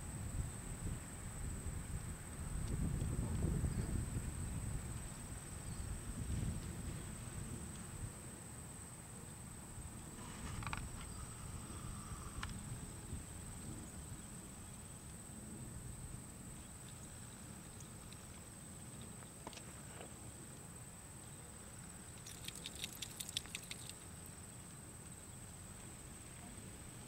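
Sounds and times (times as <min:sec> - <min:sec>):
light clicks: 0:22.2 - 0:24.1.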